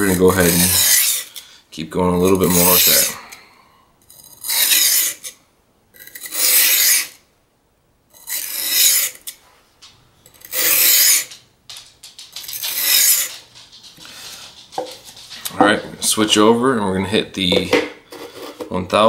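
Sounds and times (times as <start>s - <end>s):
knife grinding on whetstone: 0.0s - 1.4s, 2.2s - 3.3s, 4.0s - 5.4s, 6.0s - 7.2s, 8.1s - 9.4s, 10.3s - 11.4s, 12.4s - 13.4s.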